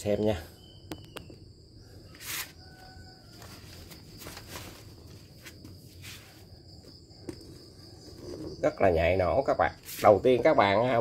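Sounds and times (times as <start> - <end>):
crickets chirping: 0.0 - 11.0
short rustle: 3.3 - 6.5.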